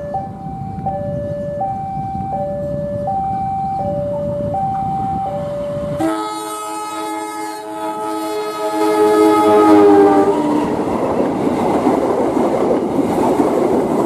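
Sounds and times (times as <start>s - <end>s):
two-tone warning alarm: 0.0s - 10.6s
diesel locomotive rumble: 0.0s - 14.0s
locomotive horn chord: 5.9s - 10.8s.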